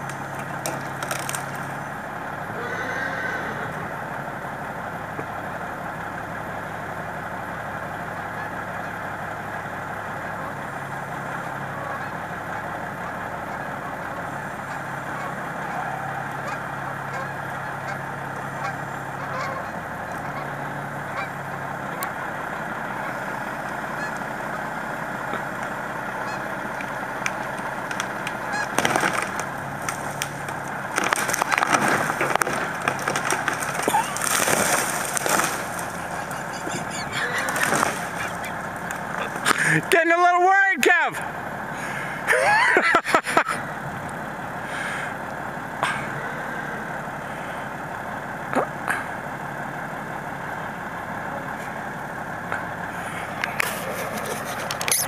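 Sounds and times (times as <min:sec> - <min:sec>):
branch cracking and snapping: 0:00.0 - 0:01.8, 0:27.2 - 0:36.2, 0:37.5 - 0:39.6
birds honking: 0:00.0 - 0:55.0
truck engine running: 0:00.0 - 0:55.0.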